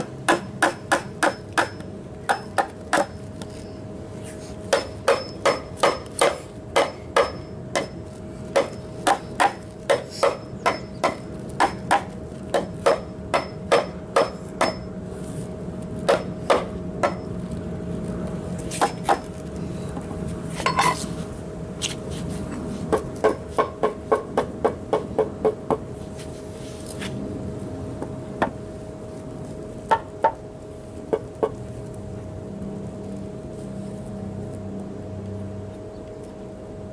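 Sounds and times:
claw hammer striking wood: 0:00.0 - 0:03.1, 0:04.7 - 0:08.0, 0:08.6 - 0:14.8, 0:16.1 - 0:17.2.

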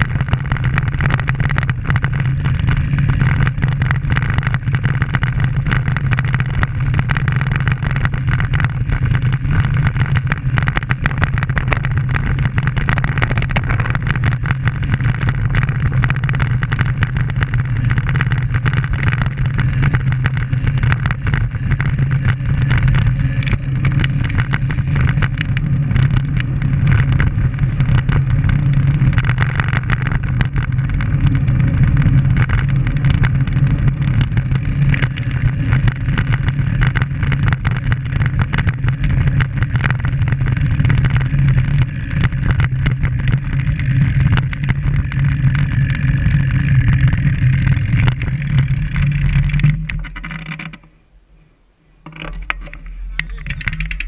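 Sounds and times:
wind rushing over microphone: 0:00.0 - 0:50.3.

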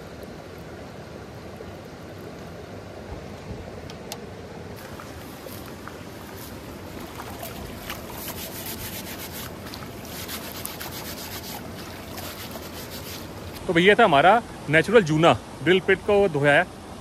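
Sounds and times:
stream rushing: 0:00.0 - 0:17.0
grass scrubbing iron grill plate: 0:04.8 - 0:13.7.

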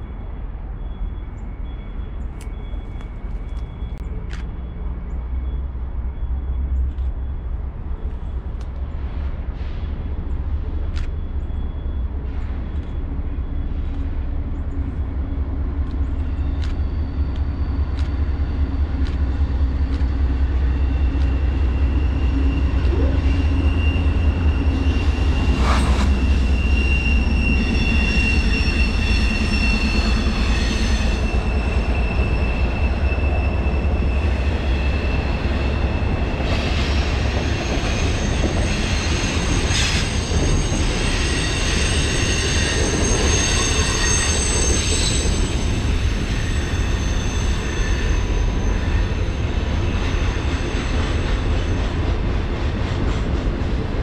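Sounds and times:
diesel locomotives rumbling past: 0:00.0 - 0:54.0
train wheels squealing: 0:00.0 - 0:54.0.

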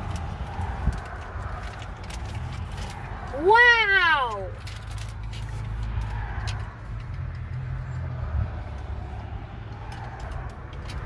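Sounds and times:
plastic toy and bag rustling: 0:00.0 - 0:03.3, 0:04.0 - 0:07.4
vehicle cabin rumble: 0:00.0 - 0:11.0.

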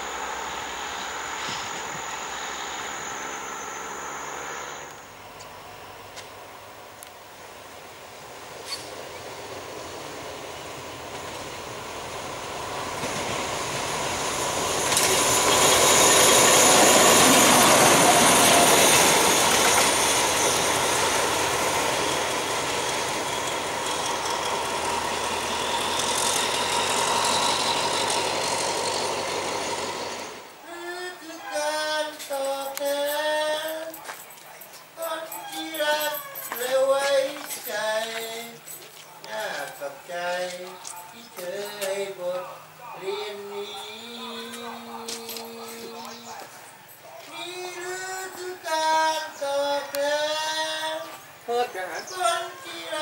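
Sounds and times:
train wheels on rails: 0:00.0 - 0:06.5, 0:07.8 - 0:30.6
diesel locomotive passing: 0:00.0 - 0:30.8
song with singing: 0:30.6 - 0:53.0.

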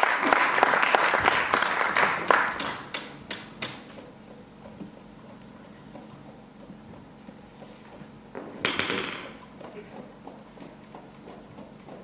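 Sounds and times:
audience applause: 0:00.0 - 0:02.9.

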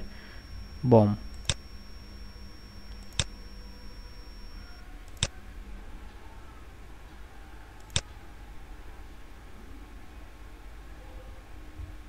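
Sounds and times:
faint background hum: 0:00.0 - 0:12.0
computer mouse click: 0:01.3 - 0:05.3, 0:07.8 - 0:08.1.

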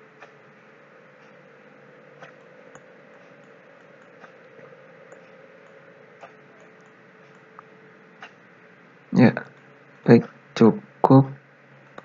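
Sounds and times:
faint hum: 0:00.0 - 0:12.0
low steady hiss: 0:00.0 - 0:12.0
computer mouse clicks: 0:02.2 - 0:08.4.

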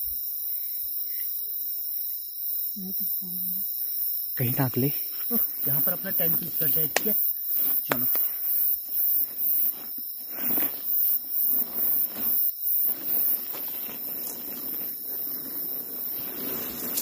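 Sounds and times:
insect chirping: 0:00.0 - 0:17.0.

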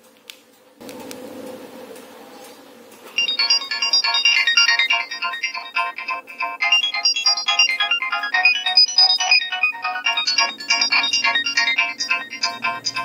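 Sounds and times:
polyphonic ringtone: 0:03.2 - 0:13.0.

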